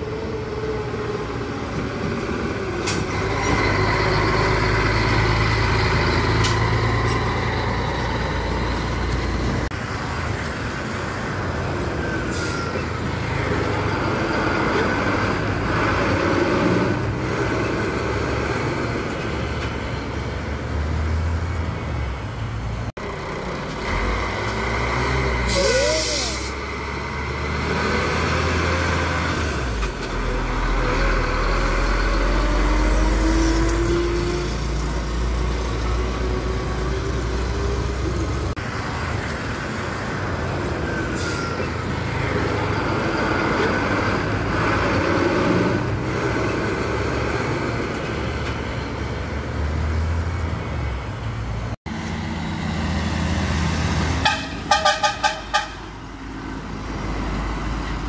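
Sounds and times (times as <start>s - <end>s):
diesel trucks passing: 0.0s - 58.0s
road noise: 0.0s - 58.0s
truck horn short toots: 54.2s - 55.8s.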